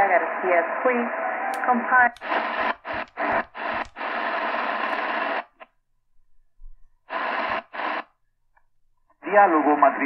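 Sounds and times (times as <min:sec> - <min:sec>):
radio static hiss bursts: 0:01.6 - 0:05.7, 0:07.1 - 0:08.2.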